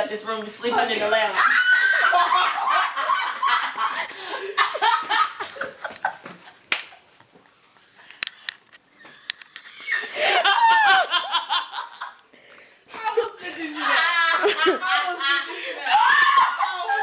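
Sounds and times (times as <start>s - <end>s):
group of people laughing: 1.4s - 6.6s, 9.1s - 12.2s, 13.1s - 17.0s.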